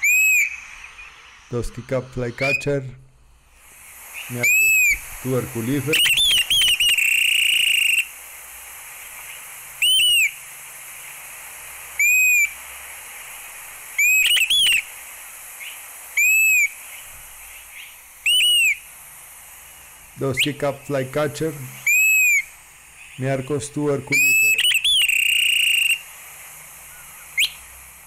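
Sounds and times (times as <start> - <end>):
bird whistling calls: 0.0 - 1.6, 2.3 - 2.8, 4.1 - 5.1, 5.7 - 8.1, 9.3 - 10.4, 12.0 - 12.6, 14.0 - 14.9, 15.6 - 18.9, 21.7 - 23.3, 24.1 - 26.0, 26.8 - 27.7.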